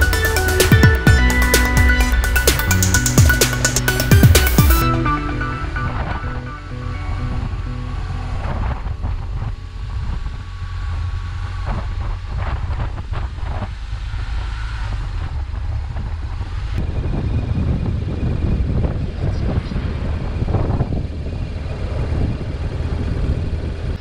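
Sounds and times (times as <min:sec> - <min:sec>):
motorcycle running: 0:00.0 - 0:24.0
road noise: 0:00.0 - 0:24.0
wind buffeting microphone: 0:07.2 - 0:13.8, 0:15.0 - 0:24.0.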